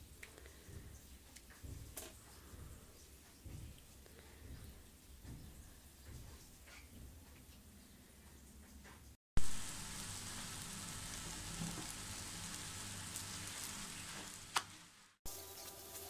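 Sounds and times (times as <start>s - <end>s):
dough sizzling in oil: 9.4s - 16.0s.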